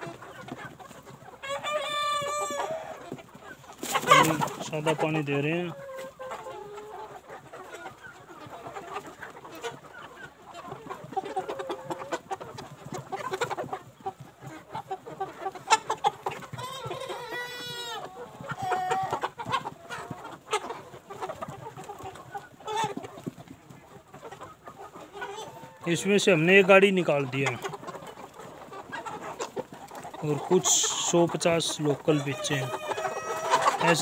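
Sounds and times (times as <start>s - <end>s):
chickens clucking: 0.0s - 34.0s
loud drawn-out chicken call: 1.5s - 3.1s, 32.1s - 34.0s.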